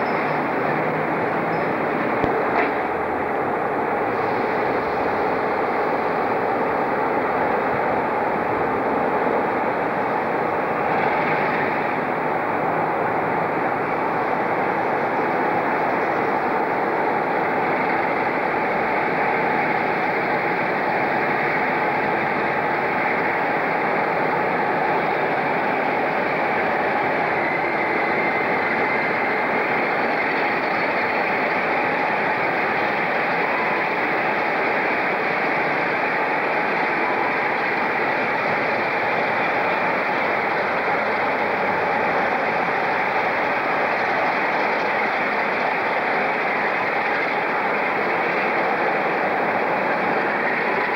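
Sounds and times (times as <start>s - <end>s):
diesel locomotive engine running: 0.0s - 50.9s.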